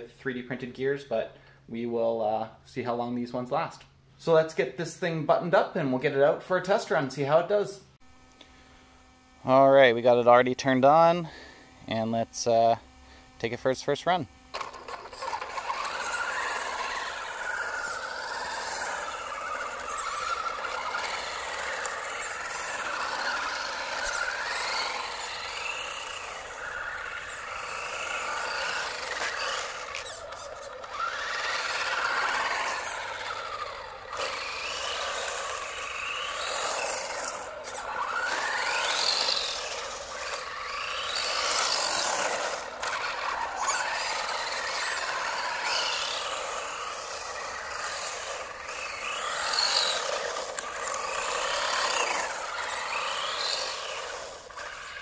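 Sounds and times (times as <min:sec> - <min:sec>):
electric motor and gears whining: 0:08.1 - 0:55.0
tyres on road: 0:14.5 - 0:55.0.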